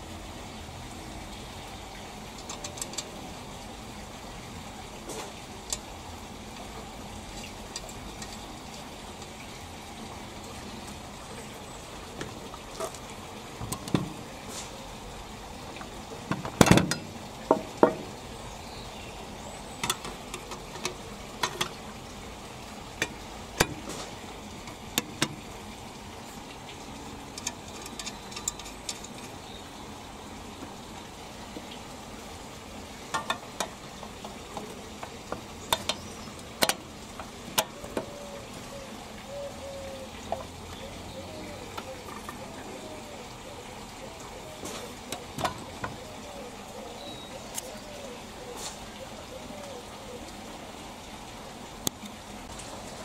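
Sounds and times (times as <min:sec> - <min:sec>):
steady hiss: 0:00.0 - 0:53.0
small metal and plastic parts clicking: 0:02.4 - 0:03.2, 0:27.3 - 0:29.4.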